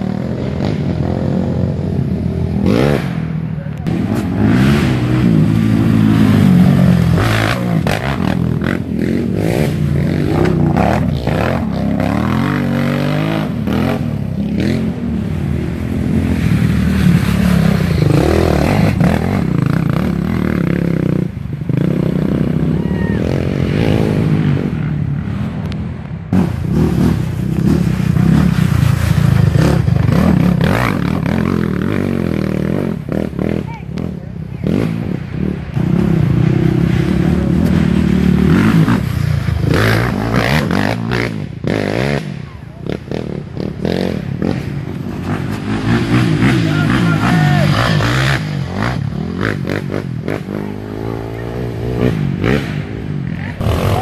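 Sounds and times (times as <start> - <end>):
quad engines revving: 0.0 - 25.4, 26.3 - 54.0.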